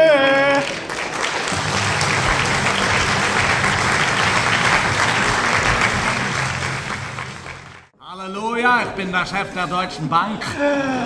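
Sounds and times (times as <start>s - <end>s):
audience applauding: 0.2s - 7.9s.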